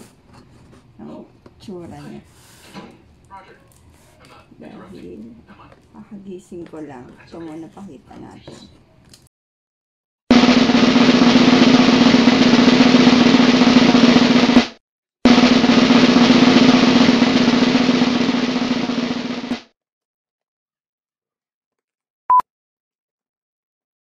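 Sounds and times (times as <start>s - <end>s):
snare drum roll: 10.3s - 19.6s.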